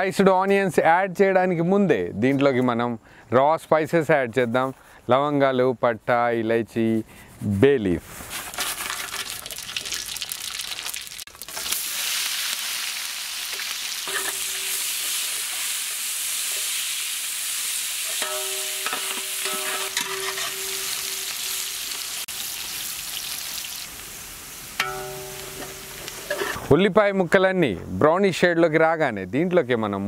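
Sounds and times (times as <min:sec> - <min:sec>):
spices and onions sizzling: 0:08.2 - 0:26.7
metal spatula scraping pot: 0:14.0 - 0:15.6, 0:18.0 - 0:21.6, 0:24.8 - 0:26.7.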